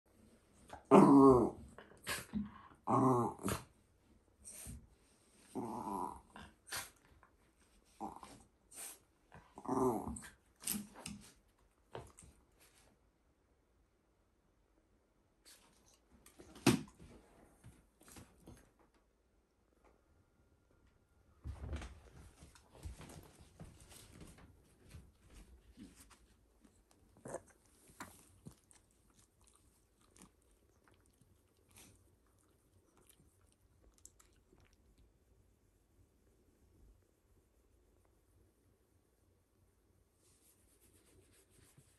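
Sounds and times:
dog growly grumbles: 0:00.7 - 0:03.7, 0:05.5 - 0:06.8, 0:08.0 - 0:08.4, 0:09.5 - 0:10.4, 0:27.2 - 0:27.6.

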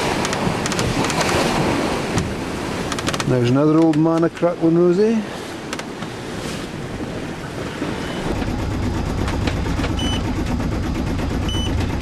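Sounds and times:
water rushing along hull: 0:00.0 - 0:12.0
short electronic beep: 0:10.0 - 0:10.2, 0:11.4 - 0:11.8.

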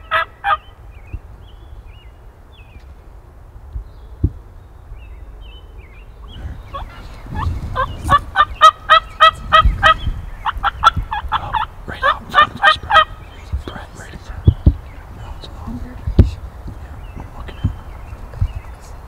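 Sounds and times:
turkey calling: 0:00.0 - 0:00.7, 0:06.2 - 0:13.6
faint woodland background: 0:00.0 - 0:19.0.

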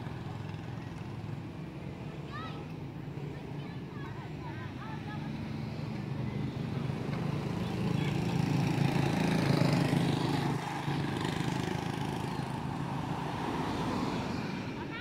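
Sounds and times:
vehicle engine passing: 0:04.9 - 0:14.8.

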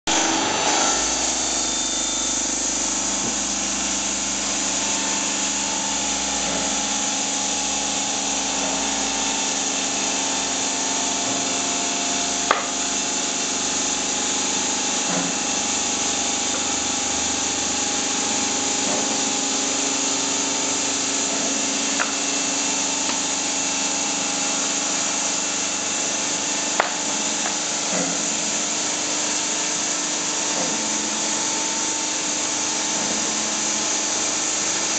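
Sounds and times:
circular saw cutting stone: 0:00.1 - 0:34.9.

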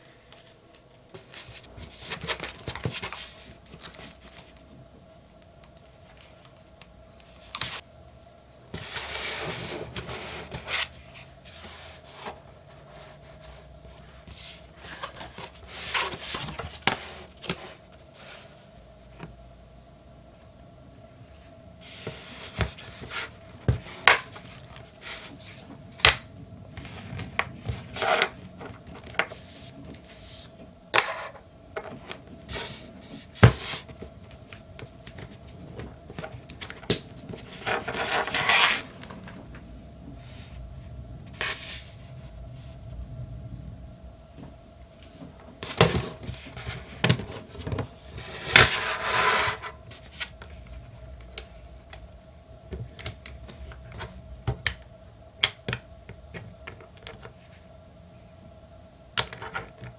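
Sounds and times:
faint steady hum: 0:00.0 - 0:59.9
paper sliding and rubbing: 0:08.7 - 0:18.6, 0:21.8 - 0:25.7, 0:29.2 - 0:30.5, 0:32.5 - 0:33.9, 0:37.4 - 0:39.4, 0:41.3 - 0:42.8, 0:45.6 - 0:50.4.

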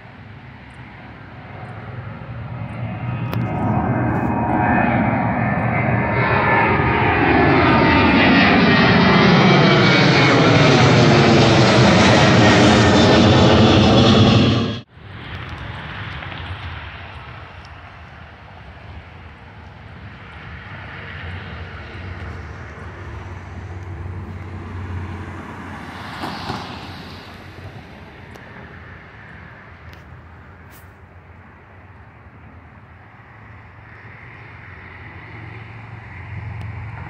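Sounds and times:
car passing close by: 0:23.1 - 0:28.1.

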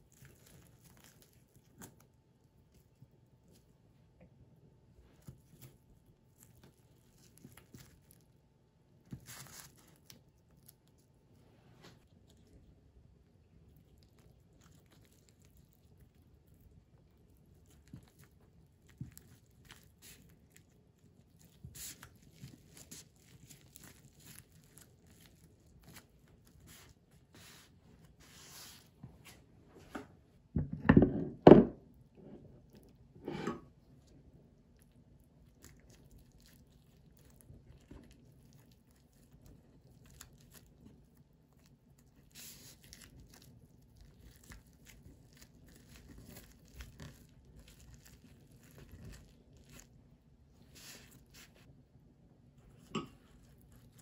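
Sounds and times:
seaweed sheets crinkling: 0:35.6 - 0:51.7.

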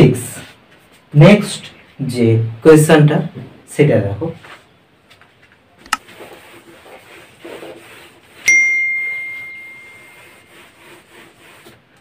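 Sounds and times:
mouse click: 0:05.8 - 0:06.0
duster rubbing on whiteboard: 0:06.0 - 0:12.0
bell ding: 0:08.5 - 0:10.2.

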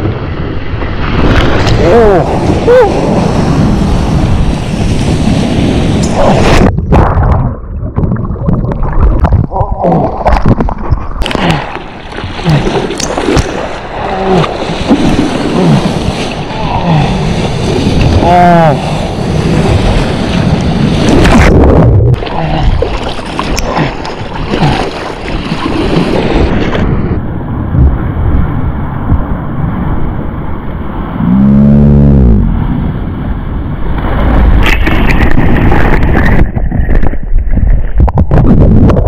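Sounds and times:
wind buffeting microphone: 0:00.0 - 0:23.5, 0:32.6 - 0:39.0
water rushing and splashing: 0:00.0 - 0:31.2, 0:32.5 - 0:39.0
person calling out: 0:01.8 - 0:03.0, 0:14.0 - 0:14.5, 0:18.2 - 0:18.9.

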